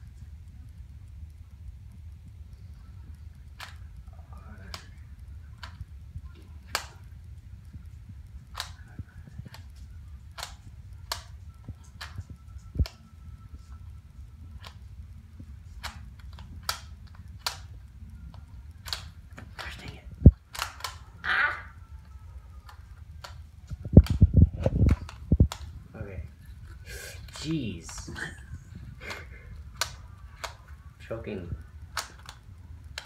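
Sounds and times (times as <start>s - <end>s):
low steady hum: 0.0s - 33.0s
plastic cube clicking: 3.5s - 3.8s, 8.4s - 8.8s, 9.4s - 13.0s, 15.8s - 17.7s, 18.4s - 21.8s, 22.6s - 25.7s, 29.1s - 30.6s, 31.9s - 33.0s.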